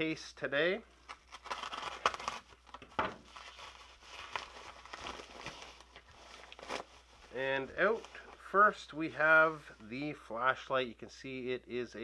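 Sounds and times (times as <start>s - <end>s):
sharp paper crackles: 1.0s - 8.4s
paper crinkling and rustling: 1.0s - 8.5s.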